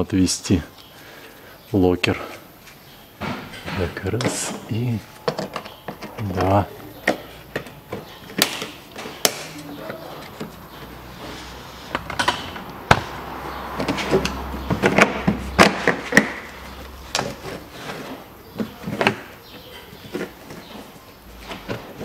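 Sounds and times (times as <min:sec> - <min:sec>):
plastic clips snapping: 0:07.1 - 0:09.6
plastic liner scraping and rustling: 0:13.8 - 0:22.0.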